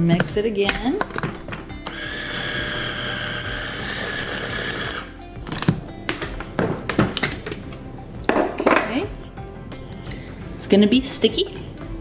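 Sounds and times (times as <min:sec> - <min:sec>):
blender motor whining: 0:01.8 - 0:05.2.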